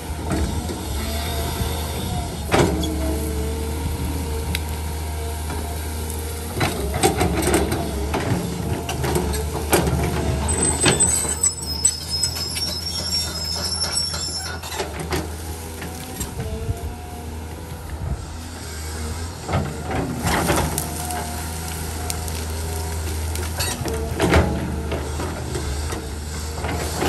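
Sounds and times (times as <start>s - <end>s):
excavator diesel engine running: 0.0s - 27.0s
high squeal: 10.5s - 14.8s
branches cracking and snapping: 20.2s - 24.0s.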